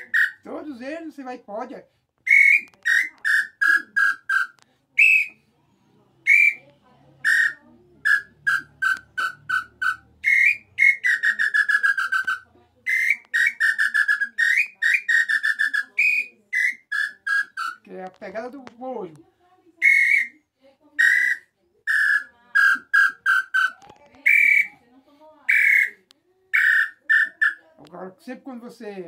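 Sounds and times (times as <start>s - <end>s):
hand-blown bird call whistles: 0.0s - 0.5s, 2.2s - 5.4s, 6.2s - 6.6s, 7.2s - 17.8s, 19.8s - 20.4s, 21.0s - 24.8s, 25.5s - 27.6s.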